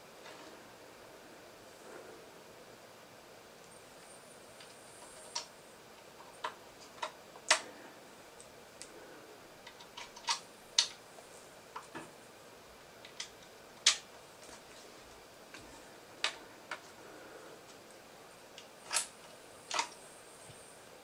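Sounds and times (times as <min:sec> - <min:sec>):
plastic parts clicking: 0:06.2 - 0:07.7, 0:09.6 - 0:11.0, 0:13.0 - 0:14.1, 0:18.6 - 0:20.0.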